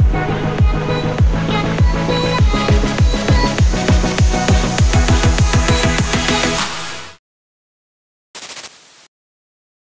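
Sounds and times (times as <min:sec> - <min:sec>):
drum and bass music: 0:00.0 - 0:07.2.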